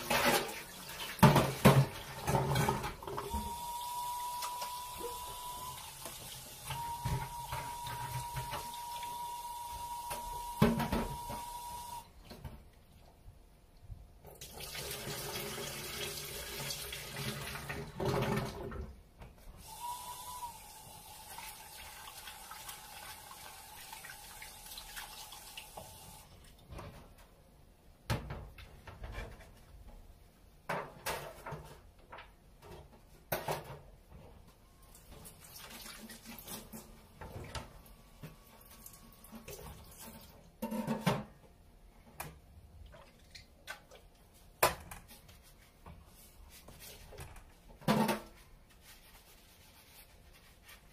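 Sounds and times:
dishes clinking against sink: 0.0s - 3.3s, 40.6s - 41.4s.

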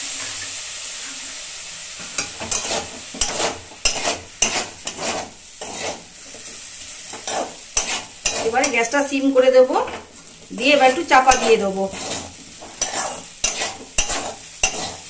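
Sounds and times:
food sizzling in a wok: 0.0s - 15.0s
metal spatula scraping wok: 2.0s - 15.0s.

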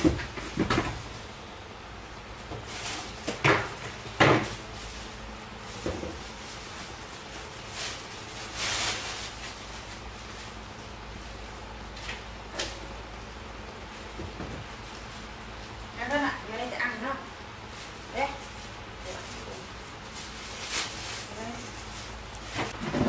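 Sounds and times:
objects knocking and clattering: 0.0s - 1.1s, 2.5s - 4.6s
rustling swishes: 17.6s - 22.8s.

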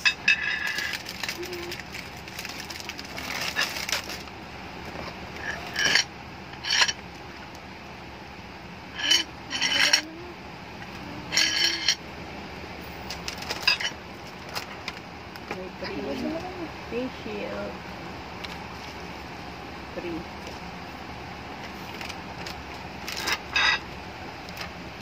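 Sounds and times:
metal plate clinking: 0.0s - 0.9s, 5.4s - 7.0s, 9.0s - 10.0s, 11.3s - 12.0s, 13.6s - 14.0s, 23.2s - 23.8s
plastic wrapping crinkling: 0.4s - 6.0s, 13.1s - 15.0s, 21.8s - 23.5s.

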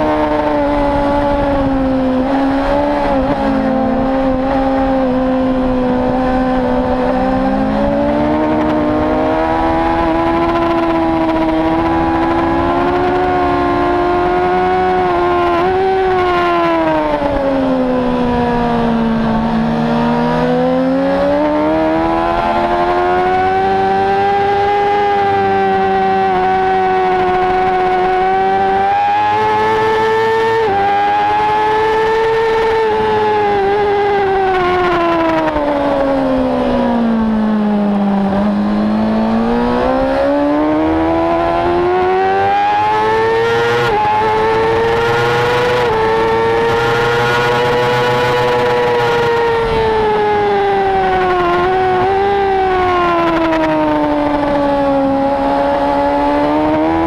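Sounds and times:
motorcycle engine at high revs: 0.0s - 57.0s
wind noise: 0.0s - 57.0s.

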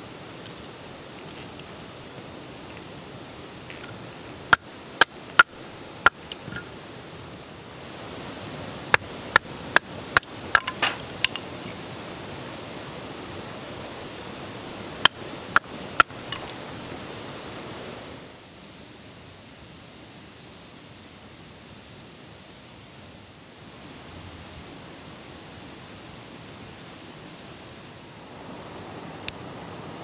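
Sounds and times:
steady background hiss: 0.0s - 30.0s.

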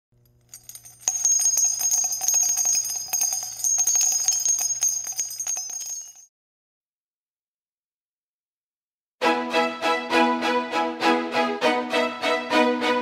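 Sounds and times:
jingling bells: 0.4s - 6.3s.

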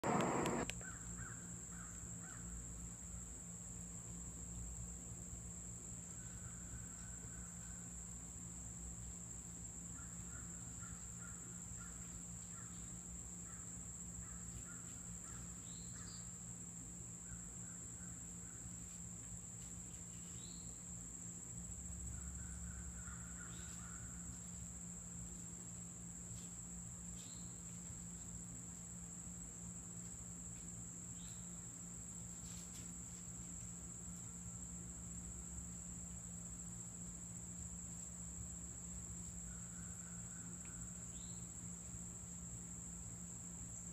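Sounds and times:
low steady hum: 0.0s - 0.7s
distant birds calling: 0.0s - 1.3s.

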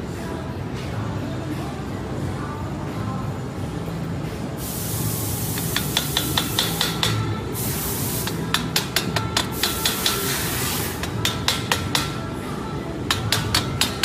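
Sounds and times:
steady hiss: 4.6s - 8.6s, 9.4s - 11.1s.

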